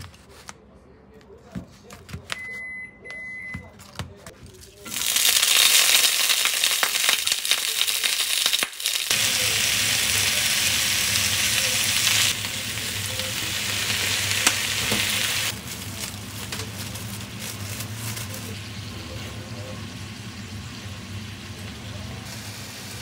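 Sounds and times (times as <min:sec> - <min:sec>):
food sizzling on a pan: 0:04.9 - 0:23.0.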